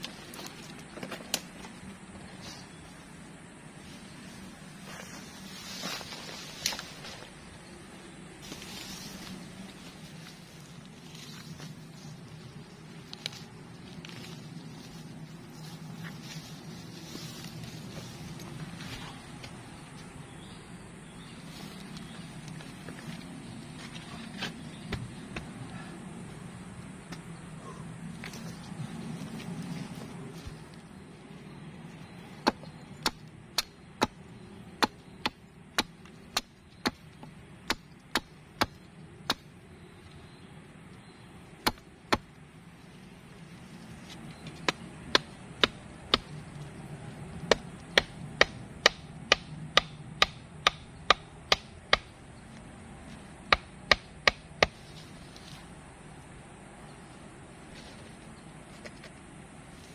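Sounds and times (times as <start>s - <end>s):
wood being chopped: 32.4s - 34.2s, 34.8s - 39.5s, 41.6s - 42.3s, 47.5s - 52.1s, 53.5s - 54.8s.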